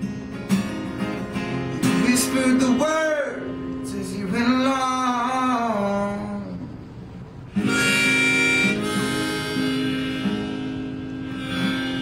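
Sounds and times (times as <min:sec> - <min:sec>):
acoustic guitar strumming: 0:00.0 - 0:06.8, 0:07.5 - 0:12.0
harmonica chord: 0:07.5 - 0:12.0
held wavering note: 0:07.6 - 0:12.0.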